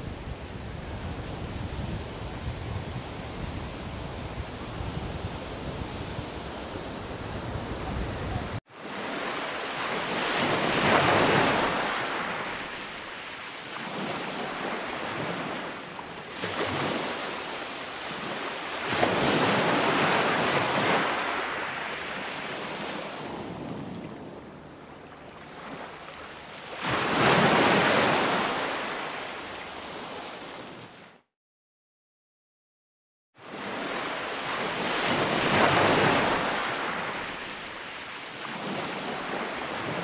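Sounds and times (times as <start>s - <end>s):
waves breaking: 8.6s - 31.1s, 33.4s - 40.0s.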